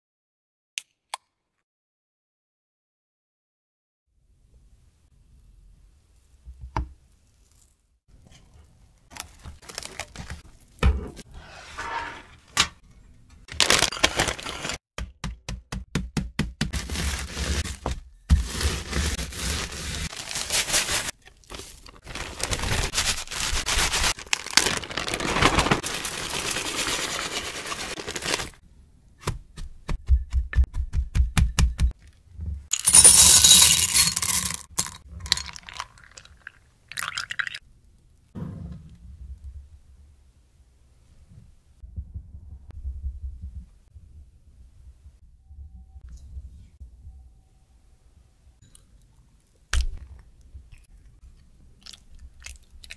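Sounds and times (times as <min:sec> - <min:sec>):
cookies crunching in plastic bag: 0:13.5 - 0:14.8, 0:18.4 - 0:28.6
chocolate discs clattering into glass jug: 0:32.7 - 0:35.6.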